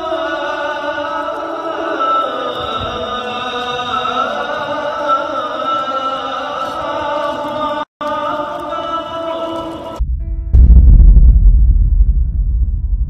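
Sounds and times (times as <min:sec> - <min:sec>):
chant-like vocal music: 0:00.0 - 0:10.0.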